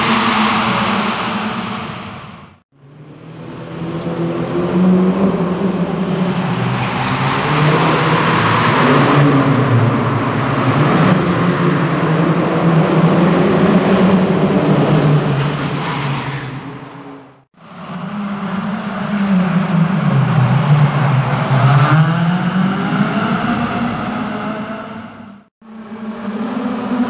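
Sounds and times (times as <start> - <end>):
car engine revving: 17.3 - 27.0.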